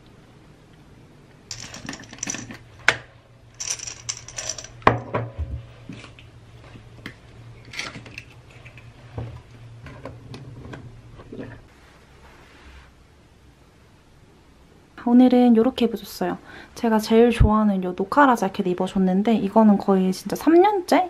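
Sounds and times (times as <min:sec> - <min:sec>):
knocks and clinks of hard objects: 0:01.5 - 0:03.0, 0:03.6 - 0:05.4.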